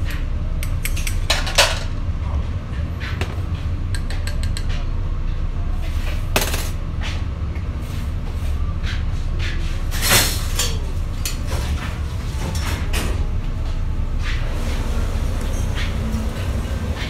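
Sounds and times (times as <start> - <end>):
utensils clinking on plates: 0.8 - 1.9, 6.4 - 6.8, 10.0 - 11.7
dishes clattering: 1.3 - 1.9, 6.4 - 6.8.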